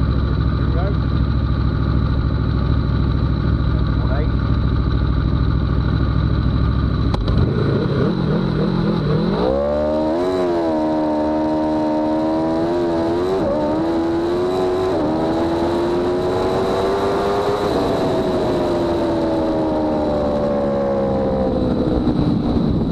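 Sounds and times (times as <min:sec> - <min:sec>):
motorcycle engine revving: 0:00.0 - 0:22.9.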